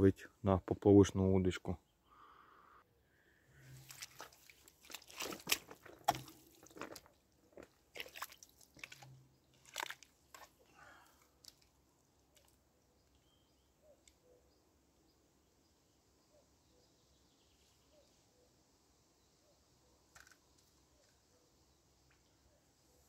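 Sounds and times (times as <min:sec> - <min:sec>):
faint outdoor background: 0:00.0 - 0:23.0
crunching and rustling handling noise: 0:03.6 - 0:12.5.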